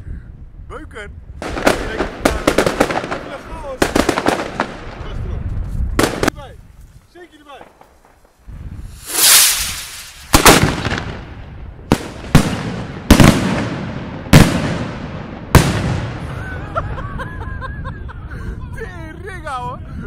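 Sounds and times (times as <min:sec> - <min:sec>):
firework sharp bangs: 0:01.4 - 0:05.0, 0:06.0 - 0:06.4, 0:08.9 - 0:16.4.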